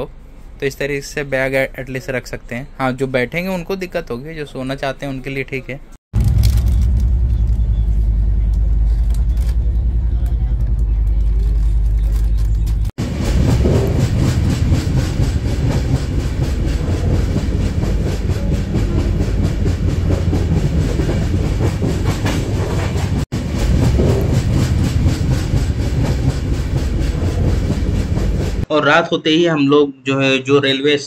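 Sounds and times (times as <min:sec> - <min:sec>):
train wheels rumbling on rails: 0:06.2 - 0:28.7.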